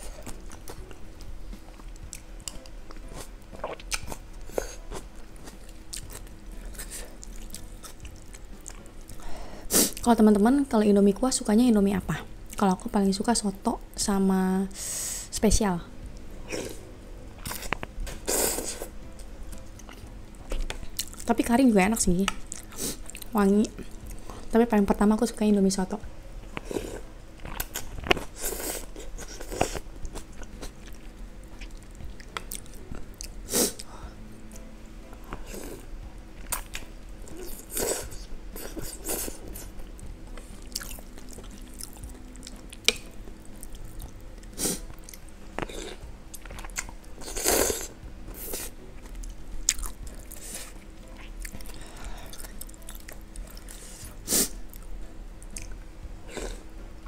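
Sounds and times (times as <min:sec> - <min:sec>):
chewing: 0:01.7 - 0:09.2, 0:40.4 - 0:54.9
slurping noodles: 0:47.2 - 0:48.7.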